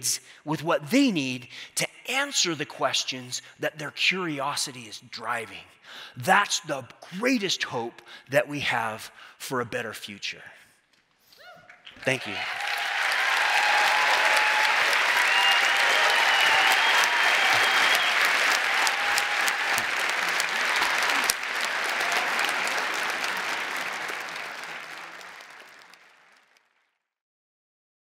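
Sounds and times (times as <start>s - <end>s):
large audience applauding: 11.8s - 26.9s.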